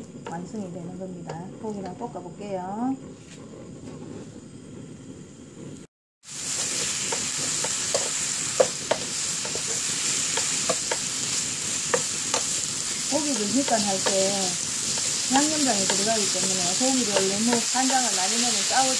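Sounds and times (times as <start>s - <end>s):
beef sizzling in frying pan: 6.2s - 18.9s.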